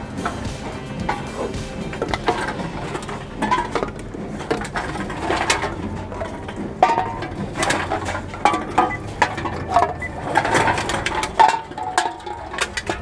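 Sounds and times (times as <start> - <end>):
drink containers clattering: 0.0 - 13.0
short squeaks: 8.8 - 11.0.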